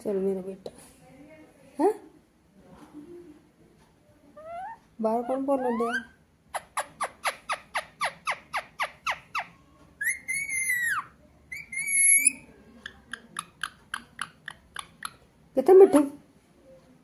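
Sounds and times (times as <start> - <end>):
parakeet chirping and whistling: 5.6 - 12.4.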